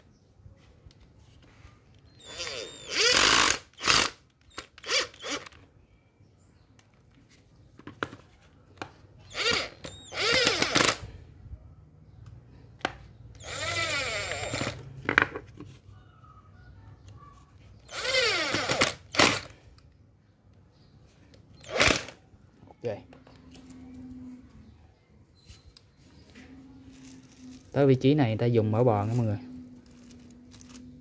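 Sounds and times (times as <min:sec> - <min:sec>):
power screwdriver whining: 0:02.1 - 0:05.6, 0:09.3 - 0:11.0, 0:13.4 - 0:15.0, 0:17.8 - 0:19.5, 0:21.6 - 0:22.2.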